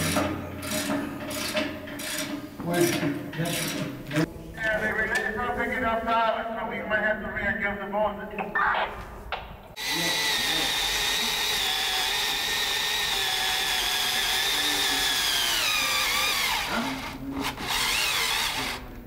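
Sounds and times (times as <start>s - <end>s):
cordless drill boring into wood: 9.8s - 18.9s.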